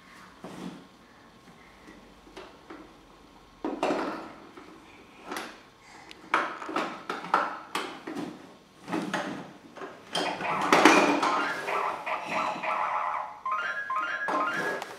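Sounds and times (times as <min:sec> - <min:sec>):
tinny electronic toy tune: 0:10.2 - 0:14.9.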